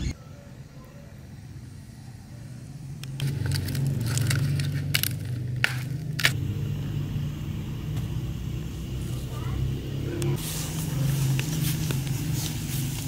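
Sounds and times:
steady low hum: 0.0s - 13.0s
cabbage leaves cracking and snapping: 3.2s - 6.4s.

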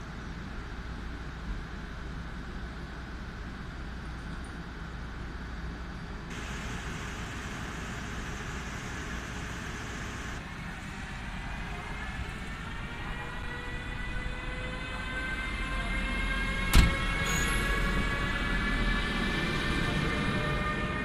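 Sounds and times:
locomotive traction whine rising: 6.3s - 21.0s.

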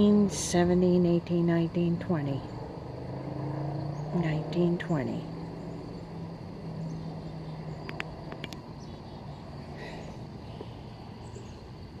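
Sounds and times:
high insect trill: 0.0s - 12.0s
sharp clicks: 7.8s - 8.7s.

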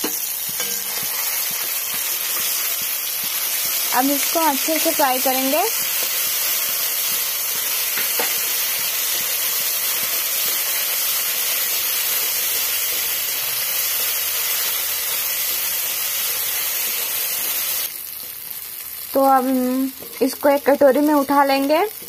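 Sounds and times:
spices sizzling in hot oil: 0.0s - 22.0s.

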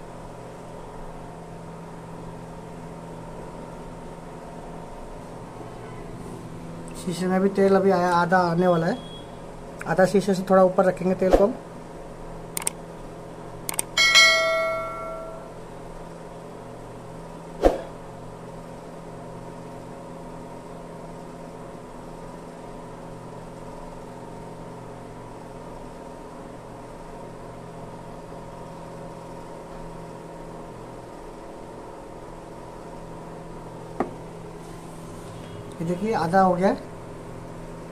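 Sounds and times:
steady machine hum: 0.0s - 37.9s
light clicks: 12.6s - 12.8s
metallic clank ringing: 14.0s - 15.5s.

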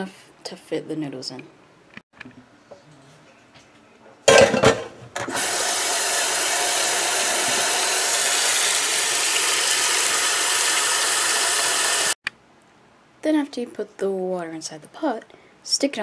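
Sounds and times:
tap water running into metal pot: 5.2s - 12.2s.

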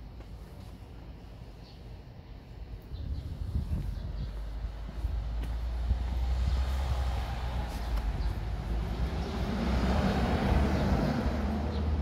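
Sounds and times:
low traffic rumble: 0.0s - 12.0s
car engine and tyres passing: 4.5s - 12.0s.

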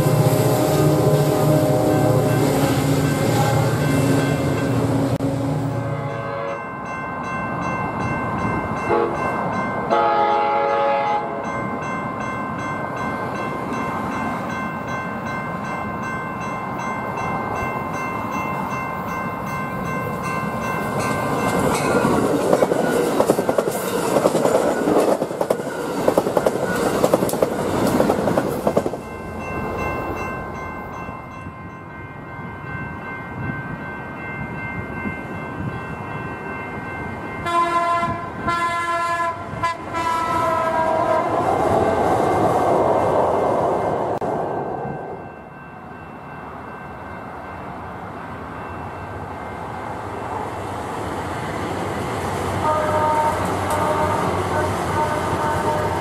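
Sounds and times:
train horn blast: 0.0s - 6.7s, 8.9s - 9.2s, 9.9s - 11.5s, 37.4s - 41.5s, 52.6s - 56.0s
light-rail train rumble: 0.0s - 56.0s
train passing at speed: 0.0s - 56.0s.

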